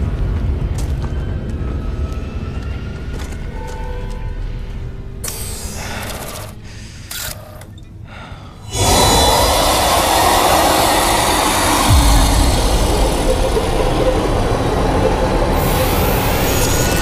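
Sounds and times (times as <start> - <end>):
dense rumbling noise: 8.7 - 17.0
rising high whine: 8.7 - 17.0
deep low boom: 8.8 - 17.0.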